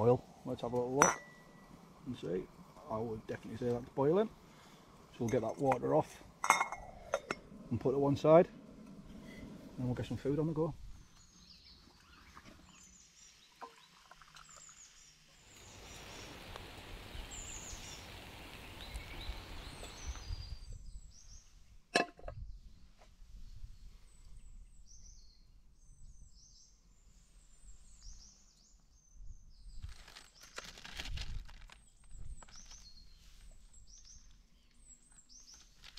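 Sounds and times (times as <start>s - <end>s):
birds chirping and singing: 14.6s - 21.5s
handling rustle: 29.7s - 35.9s.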